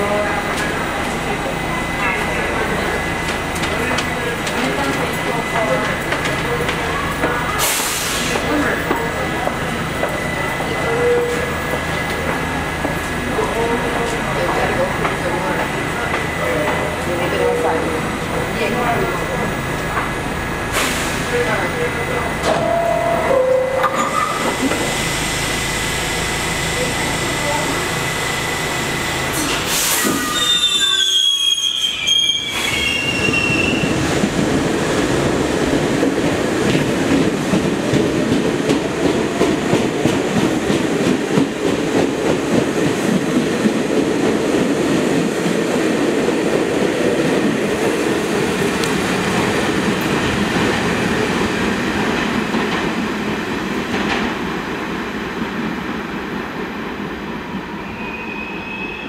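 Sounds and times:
wheels rumbling on rail: 0.0 - 58.8
train brake hiss: 7.6 - 8.5, 29.3 - 33.0
high wheel squeals: 29.9 - 34.0, 57.9 - 59.0.

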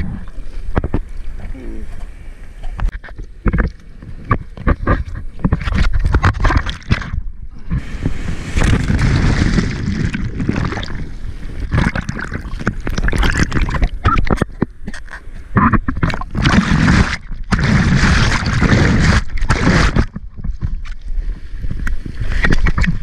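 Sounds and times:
water splashing against camera: 0.0 - 23.0
wind on microphone: 2.7 - 14.8.

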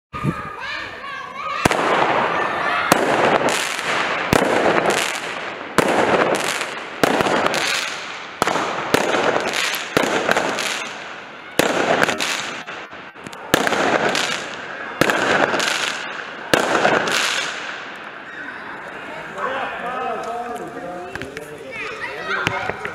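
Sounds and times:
fireworks bangs with crackle: 1.5 - 18.3.

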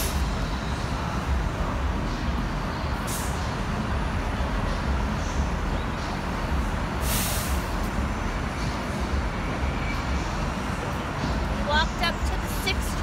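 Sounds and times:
street traffic rumble: 0.0 - 13.0
short hiss: 7.0 - 7.8.

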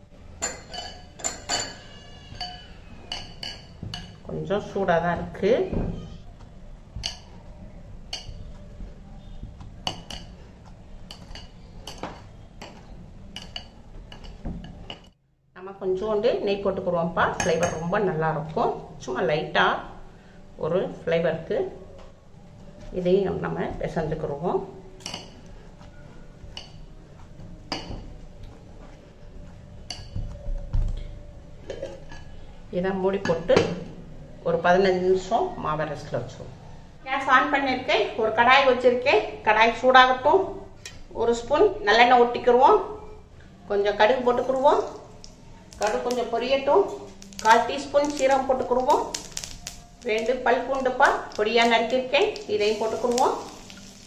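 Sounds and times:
jewellery clinking on glass bowl: 0.4 - 4.2.

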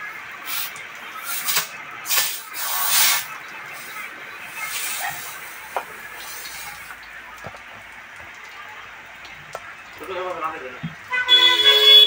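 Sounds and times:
compressed air hissing: 0.5 - 4.0.

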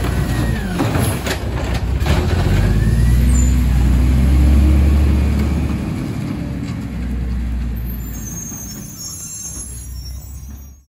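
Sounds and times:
garbage truck engine drone: 0.0 - 10.9
faint high-pitched squeal: 7.9 - 10.9.

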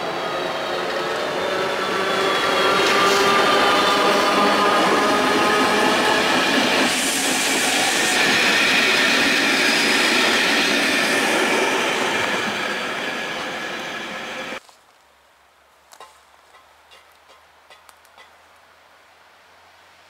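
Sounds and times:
train wheels rumbling on rail: 0.0 - 14.6.

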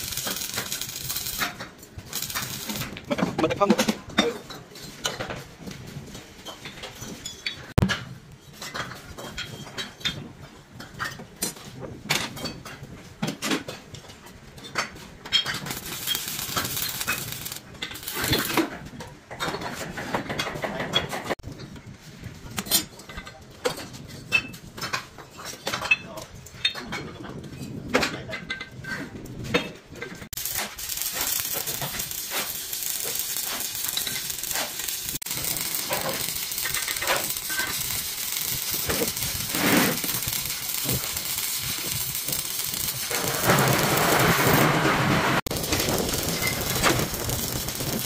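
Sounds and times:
hissing noise: 30.4 - 48.0.

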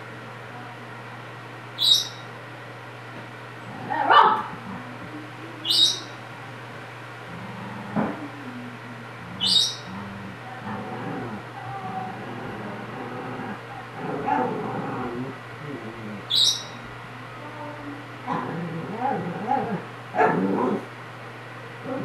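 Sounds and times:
budgerigar chirping: 1.8 - 2.3, 5.6 - 6.1, 9.4 - 9.9, 16.3 - 16.8
dog making low drawn-out sounds: 9.0 - 16.3.

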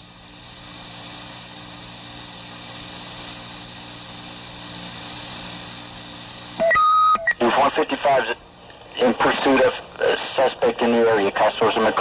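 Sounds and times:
radio tape hiss and hum: 0.4 - 12.0
loud high beep: 6.6 - 7.4.

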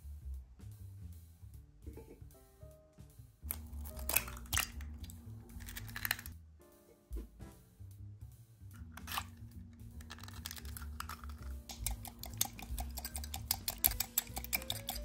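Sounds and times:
egg cracking on metal bowl: 3.4 - 6.4, 8.8 - 15.0
whisk clinking against glass: 11.0 - 15.0.

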